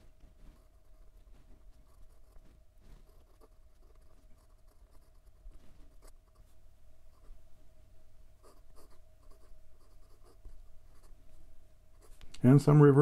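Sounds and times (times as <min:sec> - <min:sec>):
pen nib scratching on paper: 0:00.3 - 0:06.5, 0:08.4 - 0:11.2.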